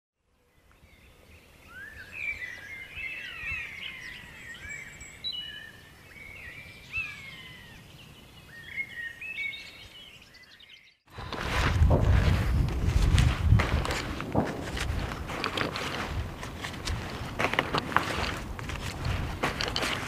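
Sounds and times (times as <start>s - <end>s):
birds singing: 0.3s - 11.4s.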